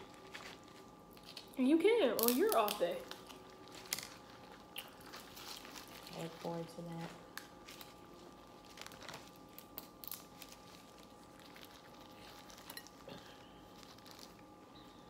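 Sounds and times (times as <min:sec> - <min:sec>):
faint steady hum: 0:00.0 - 0:15.0
utensils clinking on crab shells: 0:11.6 - 0:13.1.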